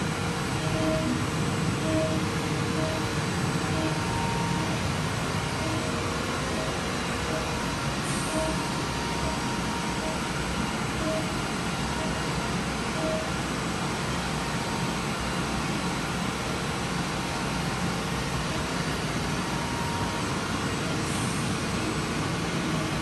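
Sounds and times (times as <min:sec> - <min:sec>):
machine spindle whirring: 0:00.0 - 0:15.8
brief tones: 0:00.6 - 0:01.2, 0:01.8 - 0:10.4, 0:11.0 - 0:12.3, 0:12.9 - 0:13.4
faint high whine: 0:00.6 - 0:12.3.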